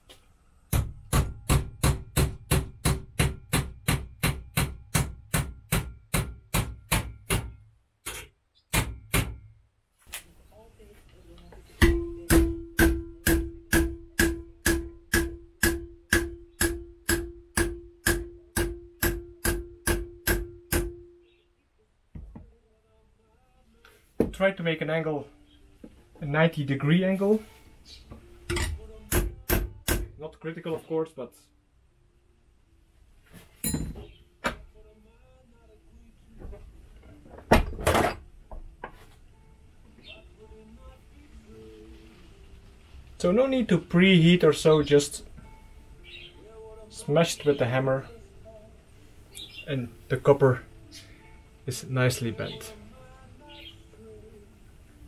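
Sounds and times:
hammer striking metal bar: 0.7 - 9.5, 11.8 - 21.2, 28.5 - 30.2.

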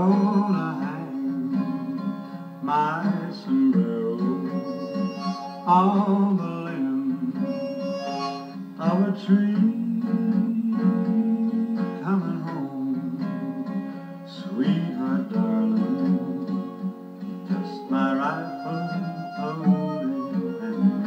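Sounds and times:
acoustic guitar: 0.0 - 21.0.

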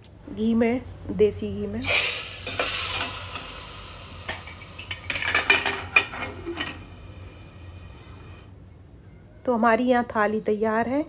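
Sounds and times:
hot ghee sizzling: 1.8 - 8.5.

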